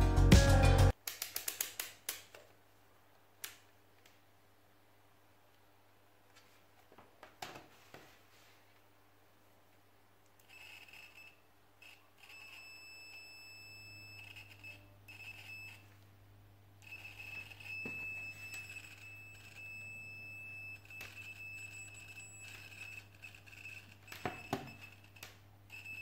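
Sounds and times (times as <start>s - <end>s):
multimeter high beep: 12.3s - 15.8s, 16.9s - 23.0s.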